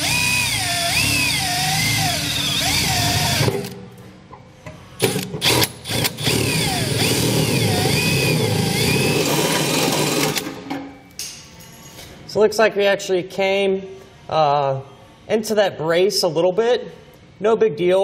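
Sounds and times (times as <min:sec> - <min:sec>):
cordless drill cutting sheet metal: 0:00.0 - 0:03.7, 0:05.0 - 0:10.6.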